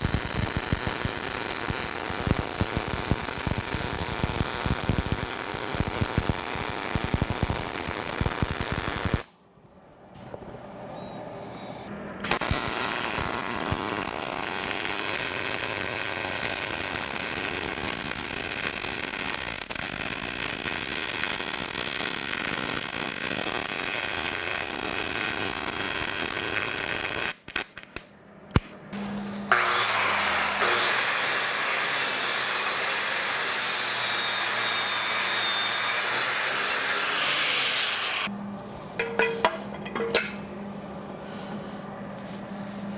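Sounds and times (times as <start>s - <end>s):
welder crackling: 0.0s - 9.4s, 12.2s - 28.8s
angle grinder whining: 29.5s - 38.3s.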